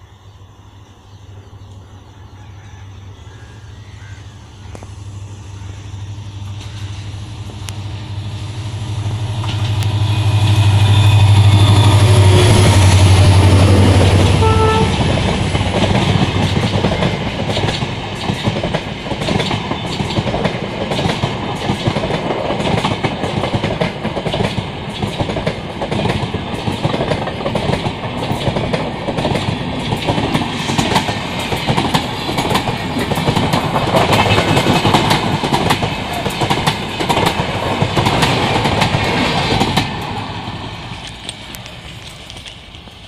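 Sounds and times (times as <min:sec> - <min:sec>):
train wheels clattering over rail joints: 0:14.9 - 0:43.0.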